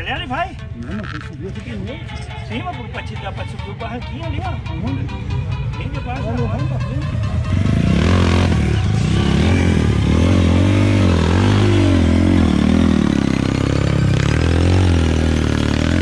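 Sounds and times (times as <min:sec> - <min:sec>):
dirt bike engine revving: 0:07.0 - 0:16.0.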